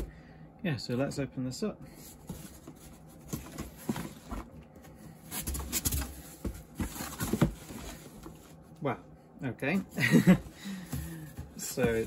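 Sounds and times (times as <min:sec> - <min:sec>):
knocks of box being handled: 0:05.4 - 0:08.4.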